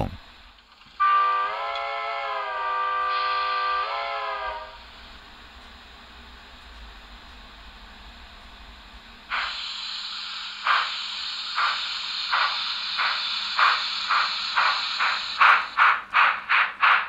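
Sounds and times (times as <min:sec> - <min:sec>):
steam locomotive exhaust chuffs: 0:00.9 - 0:17.0
steam hiss: 0:02.4 - 0:05.3, 0:09.3 - 0:17.0.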